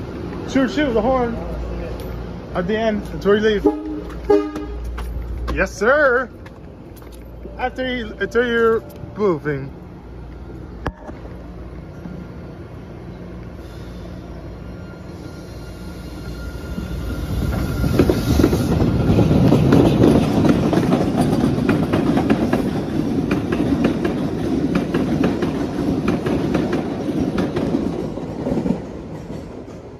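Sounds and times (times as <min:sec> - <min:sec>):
electric subway train passing: 0:00.0 - 0:29.9
wheels clicking over rail joints: 0:18.0 - 0:29.9.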